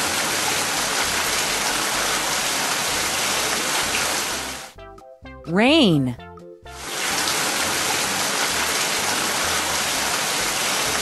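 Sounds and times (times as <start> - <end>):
heavy rain pouring: 0.0 - 4.3, 6.9 - 11.0.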